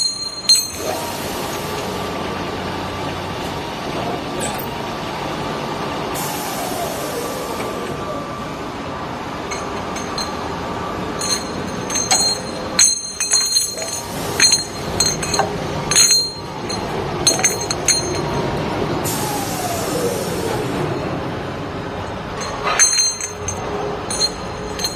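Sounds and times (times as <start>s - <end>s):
metal pipes clinking: 0.0s - 1.9s, 9.4s - 19.8s, 22.3s - 24.9s
machine whine: 0.0s - 24.9s
machine running: 0.8s - 24.9s.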